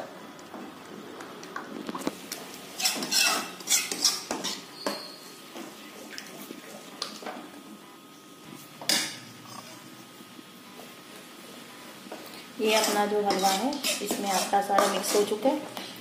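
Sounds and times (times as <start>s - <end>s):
steel spoon scraping a pan: 2.8s - 5.2s, 12.6s - 15.4s.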